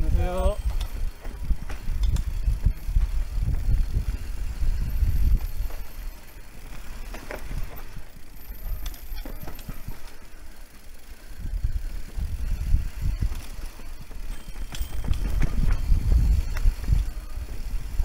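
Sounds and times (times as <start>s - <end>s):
wind on microphone: 0.0s - 5.9s, 11.4s - 18.0s
bike clicks and rattles: 0.0s - 18.0s.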